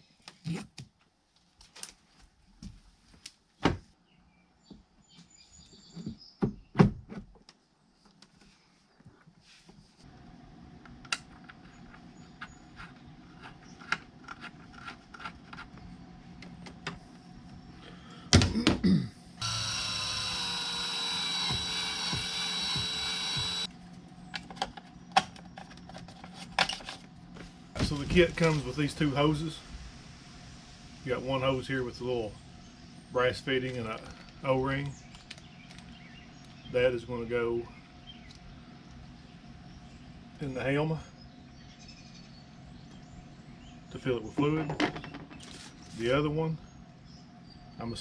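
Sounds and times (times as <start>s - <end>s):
power tool running: 19.4s - 23.7s.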